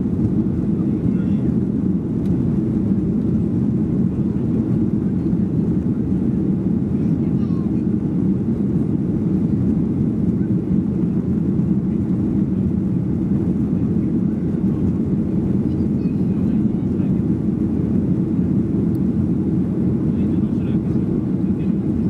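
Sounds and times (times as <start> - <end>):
airplane cabin engine drone: 0.0 - 22.0.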